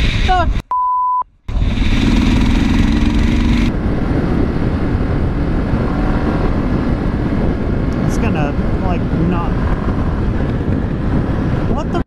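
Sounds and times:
wind and road noise: 0:00.0 - 0:00.7, 0:01.3 - 0:12.0
motorcycle running: 0:01.5 - 0:12.0.

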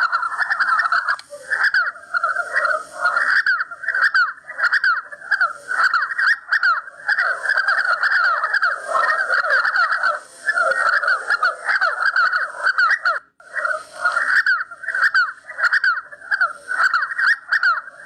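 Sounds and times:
partridges calling: 0:00.0 - 0:18.0.

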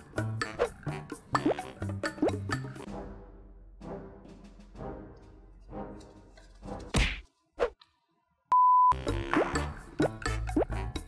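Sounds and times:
background music with beat: 0:00.0 - 0:06.9, 0:09.0 - 0:11.0.

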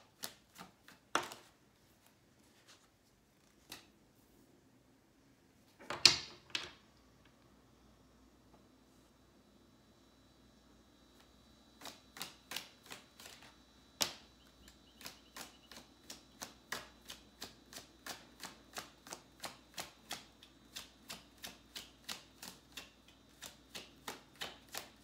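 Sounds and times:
cards shuffling and clicking: 0:00.0 - 0:04.0, 0:11.8 - 0:25.0.

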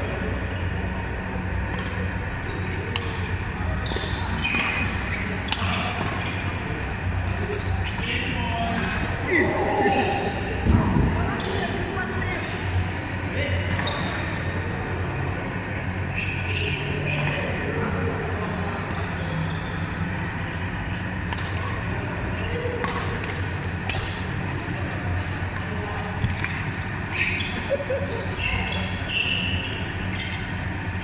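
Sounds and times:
low hum of sports hall: 0:00.0 - 0:31.0
voices: 0:00.0 - 0:31.0
shoes squeaking on court floor: 0:03.7 - 0:06.6, 0:11.3 - 0:12.5, 0:13.8 - 0:14.5, 0:26.0 - 0:27.7, 0:28.3 - 0:31.0
rackets striking shuttlecock: 0:22.8 - 0:24.3.

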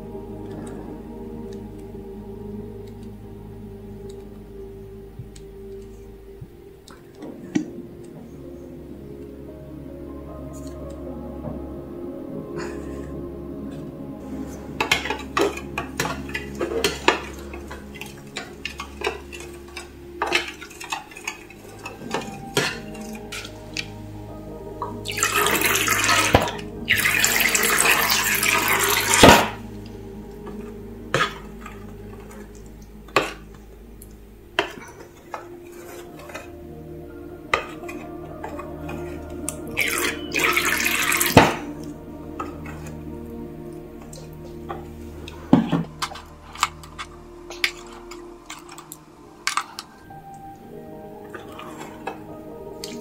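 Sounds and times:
faint background music: 0:00.0 - 0:53.0
liquid pouring splashily: 0:25.1 - 0:29.6, 0:39.8 - 0:41.7.

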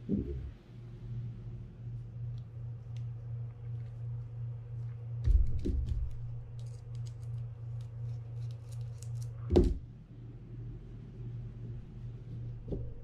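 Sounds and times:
low hum: 0:00.0 - 0:13.0
loud knock: 0:09.5 - 0:09.9.

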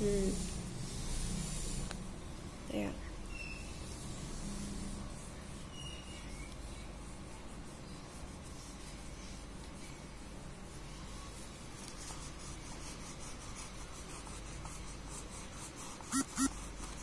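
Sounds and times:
crayon rubbing on paper: 0:03.9 - 0:17.0.

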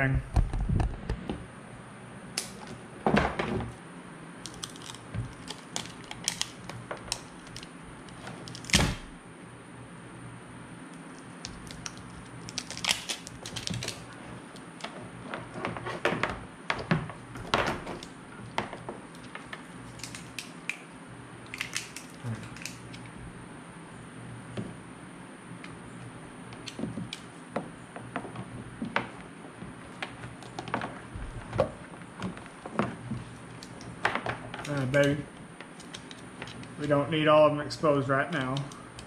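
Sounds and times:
steady low hum: 0:00.0 - 0:39.0
wires and plastic parts handled: 0:04.4 - 0:09.0, 0:10.9 - 0:20.8, 0:21.4 - 0:23.1, 0:26.6 - 0:27.4, 0:28.1 - 0:37.1, 0:38.2 - 0:39.0.

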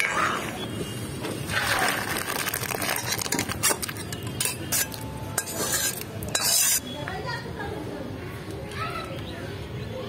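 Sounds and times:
metal spoon scraping steel pan: 0:03.6 - 0:07.0.

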